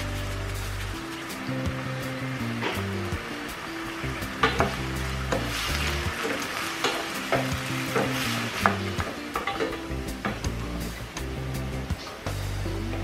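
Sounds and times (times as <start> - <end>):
vegetables sizzling in oil: 0.0 - 13.0
spatula scraping a pan: 4.4 - 9.9.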